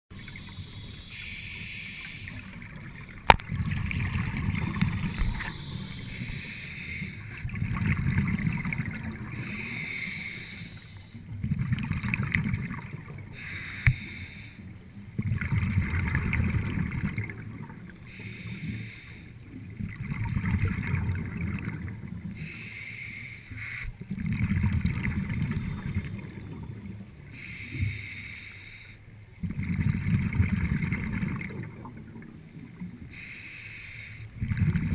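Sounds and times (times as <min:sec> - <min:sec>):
diver breathing through regulator: 0:00.1 - 0:02.6, 0:04.9 - 0:07.5, 0:09.2 - 0:11.3, 0:13.3 - 0:14.8, 0:18.1 - 0:19.4, 0:22.3 - 0:24.0, 0:27.3 - 0:29.1, 0:33.1 - 0:34.7
exhaled bubbles rumbling: 0:02.3 - 0:06.5, 0:07.4 - 0:10.0, 0:11.2 - 0:13.4, 0:15.0 - 0:18.1, 0:19.6 - 0:22.4, 0:24.0 - 0:27.3, 0:29.4 - 0:33.0, 0:34.4 - 0:34.9.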